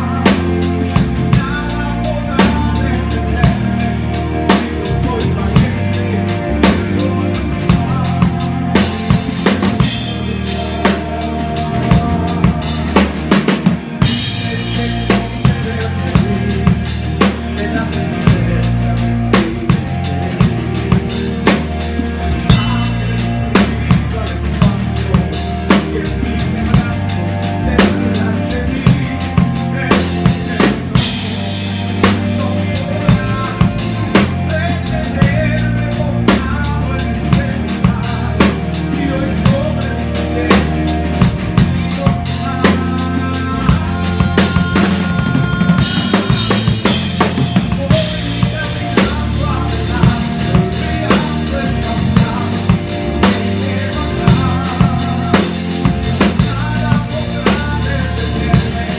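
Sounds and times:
live band playing: 0.0 - 58.9
singer through pa: 0.0 - 58.9
kick and snare drum beat: 22.5 - 23.8.

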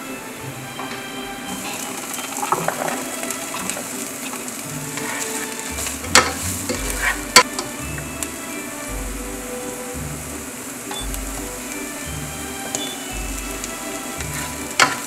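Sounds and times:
soft background music: 0.0 - 15.0
food sizzling in a pan: 1.1 - 9.0.

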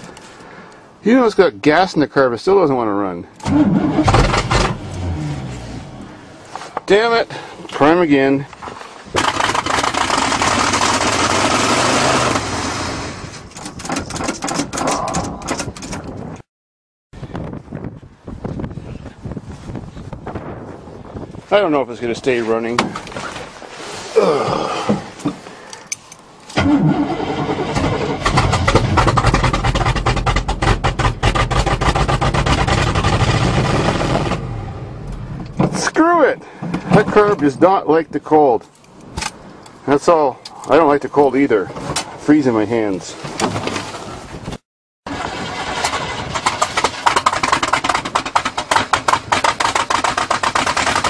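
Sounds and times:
engine running roughly and popping: 9.2 - 12.7, 27.7 - 34.6, 45.1 - 51.0.

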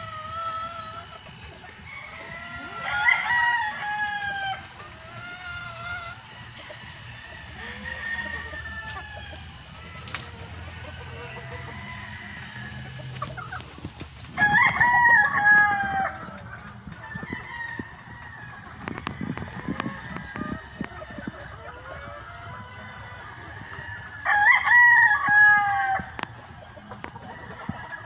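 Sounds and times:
hens clucking: 0.0 - 28.0
rooster crowing: 1.8 - 4.6, 5.7 - 13.2, 14.4 - 16.4, 22.2 - 26.1.

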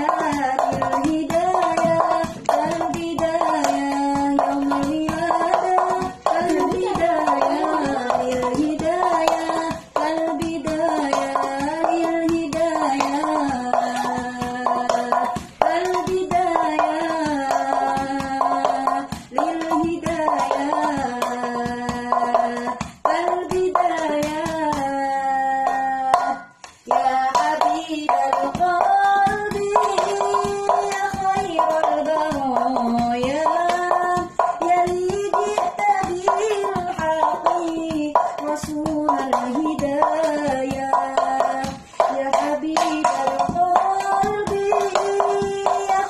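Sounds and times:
person singing religious melody: 0.0 - 23.2, 24.1 - 46.0
hands slapping a frying pan drum: 0.0 - 25.0, 25.7 - 46.0.

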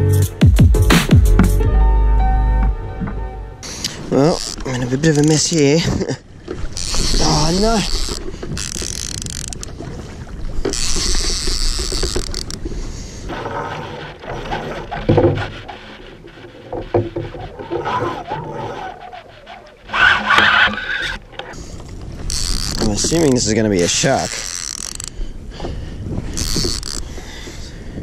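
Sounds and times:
water splashing against kayak: 3.6 - 28.0
knocks and scrapes of gear: 10.6 - 12.7, 13.3 - 21.6, 26.3 - 27.1.

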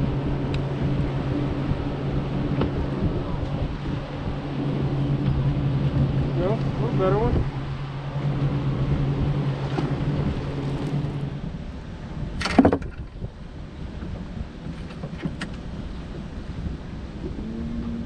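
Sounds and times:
electric trolling motor humming: 0.0 - 12.2
water noise: 0.0 - 18.0
wind: 0.0 - 18.0.

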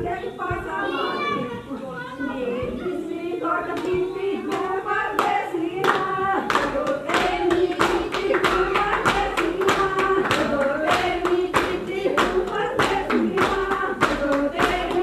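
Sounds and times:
women singing together: 0.0 - 15.0
hand clapping: 3.8 - 15.0.

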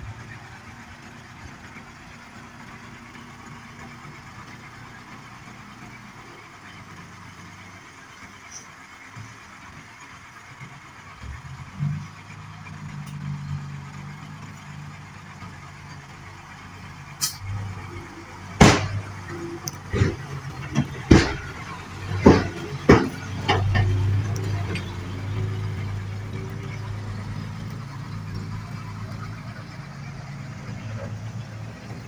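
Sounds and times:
diesel truck engines idling: 0.0 - 32.0
engine revving: 11.2 - 32.0
short hiss: 17.2 - 17.4.

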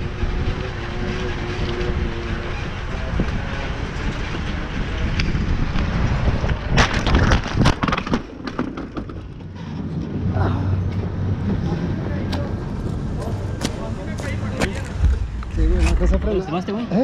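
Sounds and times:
wind and road noise: 0.0 - 17.0
bicycle crashing onto pavement: 6.6 - 9.5.

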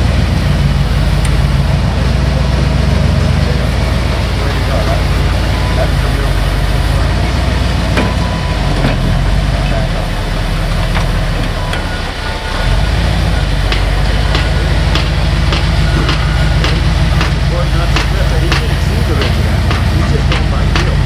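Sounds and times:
engine running at low revs: 0.0 - 21.0
sharp clicks and knocks: 13.4 - 21.0.

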